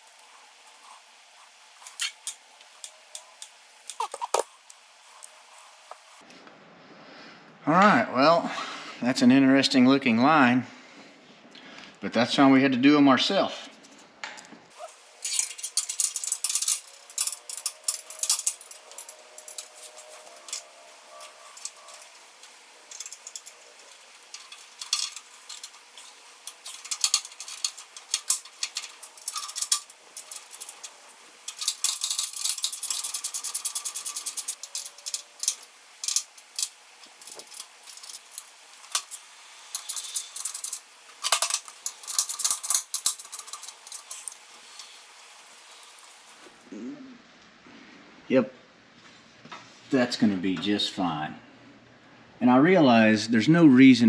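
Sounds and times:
metal brake line clicking and rattling: 15.2s - 46.2s.

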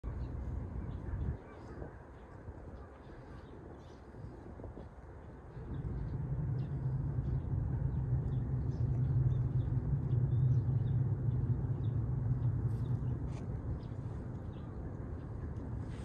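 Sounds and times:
vehicle engine rumble: 4.2s - 16.0s.

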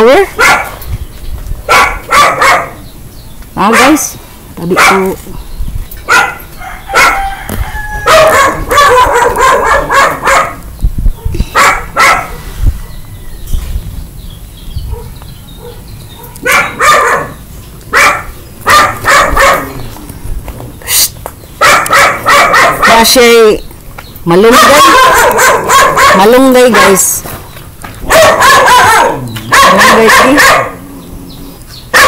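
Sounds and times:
dog barking loudly: 0.2s - 0.8s, 1.6s - 2.8s, 3.6s - 5.2s, 6.0s - 7.4s, 8.0s - 12.4s, 14.9s - 19.9s, 21.6s - 23.5s, 24.4s - 27.2s, 28.0s - 30.9s.

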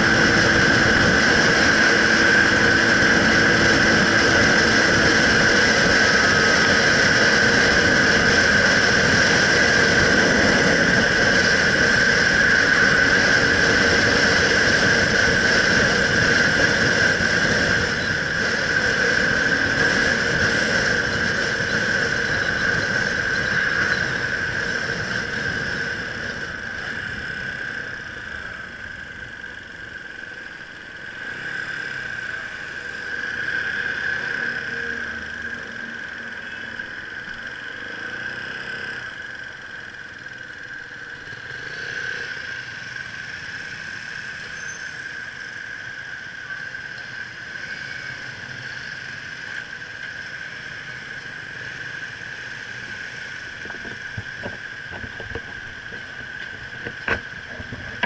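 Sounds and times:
wind noise: 0.0s - 30.0s, 51.5s - 58.0s
motorcycle engine: 0.0s - 58.0s.

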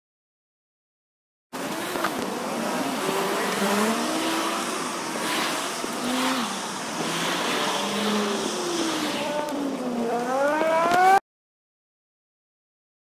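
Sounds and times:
sped-up car engine whines: 1.6s - 11.2s.

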